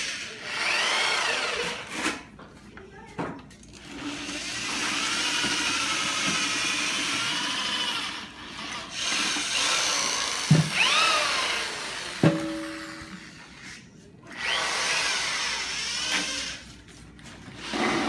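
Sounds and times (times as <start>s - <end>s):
cordless drill whining: 0.0s - 1.9s, 3.8s - 12.2s, 14.3s - 16.6s.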